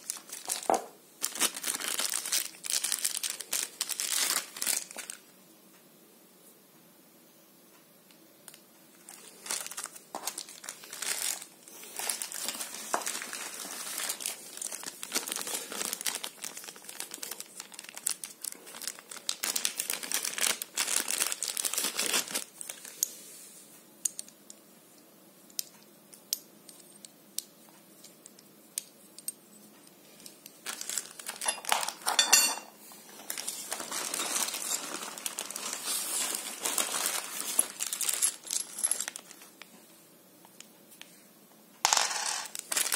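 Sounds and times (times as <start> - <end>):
plastic bags crinkling: 0.0 - 5.2, 9.0 - 23.0, 30.6 - 39.7, 42.0 - 42.9.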